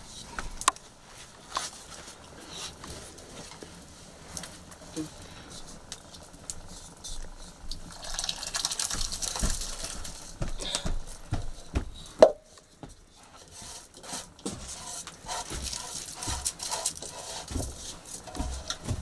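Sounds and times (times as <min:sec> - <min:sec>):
liquid pouring and splashing: 0:07.4 - 0:11.4.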